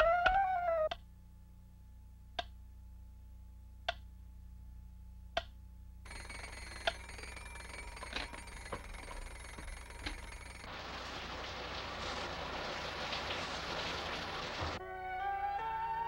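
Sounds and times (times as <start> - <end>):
clock ticking: 6.1 - 10.7.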